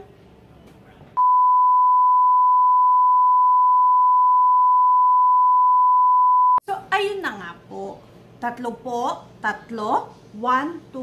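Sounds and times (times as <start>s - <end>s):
steady test tone beep: 1.2s - 6.6s.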